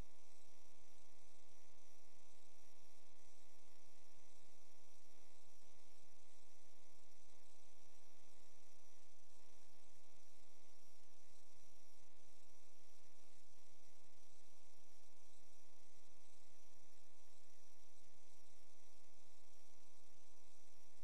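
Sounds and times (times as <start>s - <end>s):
faint static hiss: 0.0s - 21.0s.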